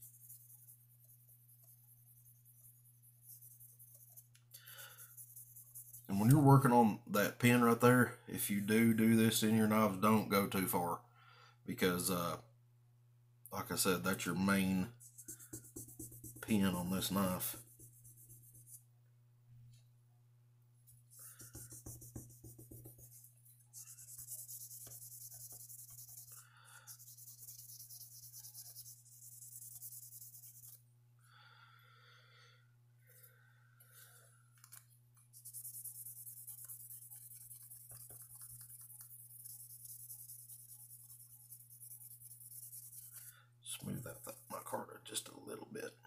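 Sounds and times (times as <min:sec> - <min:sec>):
sandpaper scratching on knife handle: 0:00.0 - 0:06.2, 0:21.2 - 0:30.8, 0:35.3 - 0:43.3
low electrical hum: 0:00.0 - 0:46.0.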